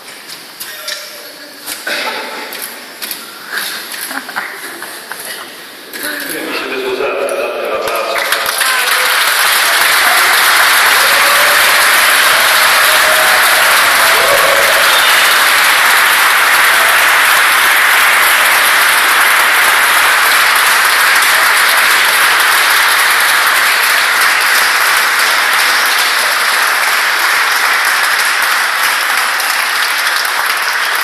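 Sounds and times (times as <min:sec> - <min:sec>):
crowd applauding: 0:07.1 - 0:31.0.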